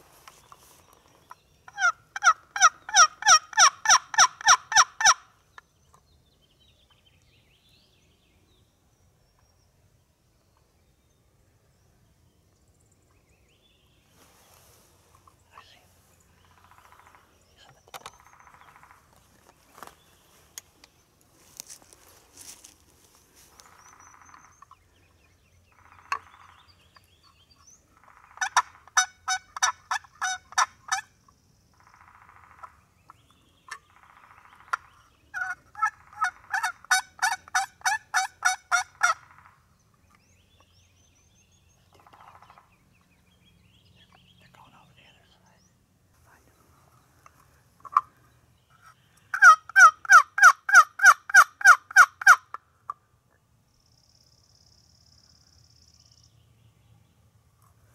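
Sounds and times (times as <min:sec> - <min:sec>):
turkey call yelps: 0:01.7 - 0:05.3, 0:28.4 - 0:31.1, 0:34.5 - 0:39.5, 0:49.3 - 0:52.6.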